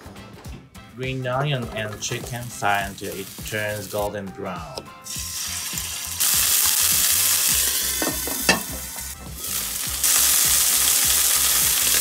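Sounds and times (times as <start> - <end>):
chicken sizzling in oil: 2.1 - 4.1, 5.0 - 12.0.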